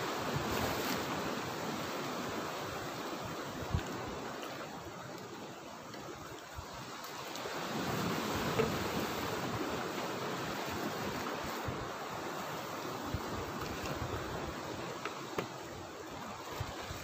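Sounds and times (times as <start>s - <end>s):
waves washing against rocks: 0.0s - 17.0s
wind gusting on microphone: 0.0s - 17.0s.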